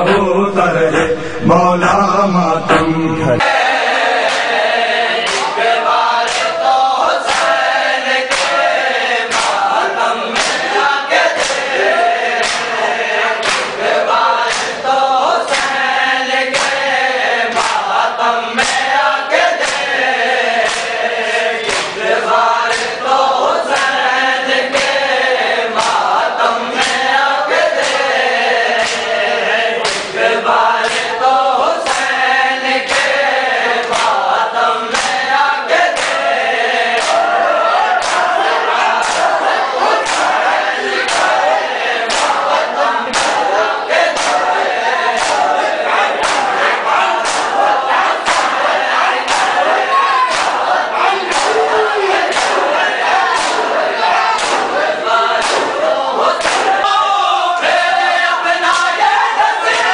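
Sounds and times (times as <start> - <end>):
men chanting in unison: 0.0 - 59.9
hand slaps on chests: 4.1 - 9.7, 10.3 - 11.8, 12.4 - 12.8, 13.4 - 14.9, 15.5 - 15.8, 16.5 - 16.9, 17.5 - 17.9, 18.6 - 20.0, 20.6 - 21.0, 21.6 - 22.0, 22.7 - 23.1, 23.7 - 24.0, 24.7 - 25.1, 25.8 - 26.1, 26.8 - 27.1, 27.8 - 28.2, 28.8 - 29.1, 29.8 - 30.2, 30.8 - 31.2, 31.8 - 32.1, 32.8 - 33.2, 33.8 - 34.2, 34.9 - 36.3, 36.9 - 37.4, 38.0 - 39.3, 40.0 - 40.4, 41.0 - 41.4, 42.1 - 42.5, 43.1 - 44.5, 45.1 - 45.5, 46.2 - 46.6, 47.2 - 49.6, 50.2 - 52.7, 53.3 - 55.8, 56.4 - 56.9.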